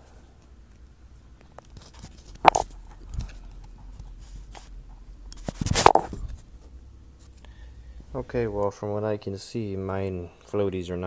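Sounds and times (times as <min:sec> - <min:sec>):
handling noises: 0:00.0 - 0:07.6.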